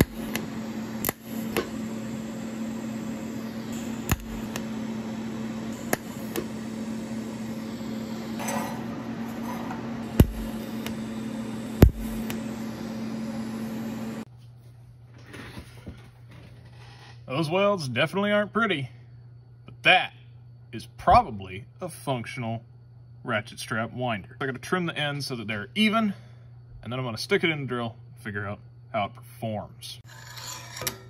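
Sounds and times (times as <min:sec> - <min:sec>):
sharp clicks: 0:00.0 - 0:01.7, 0:04.0 - 0:04.7
welding arc buzzing and hissing: 0:00.0 - 0:14.3.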